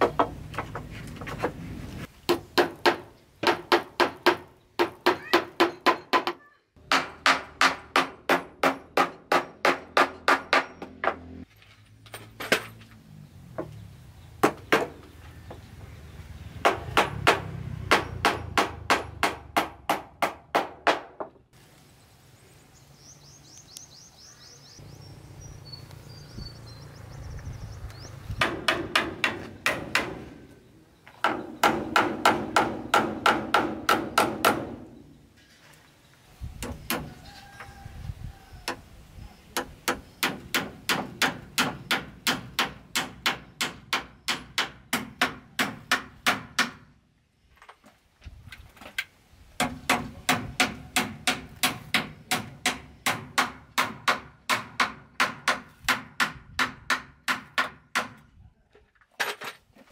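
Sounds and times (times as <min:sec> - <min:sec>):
hammer driving nails into wood: 0:31.2 - 0:34.8, 0:39.6 - 0:46.9, 0:49.6 - 0:58.2.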